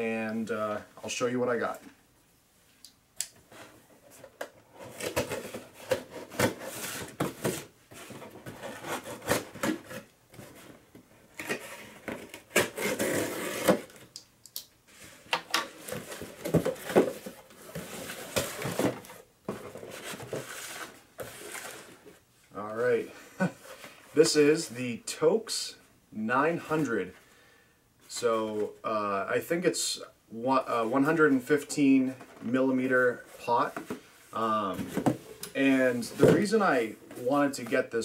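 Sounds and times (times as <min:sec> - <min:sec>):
cardboard flaps scraping and rustling: 0:03.5 - 0:10.8, 0:11.4 - 0:14.1, 0:15.0 - 0:22.2.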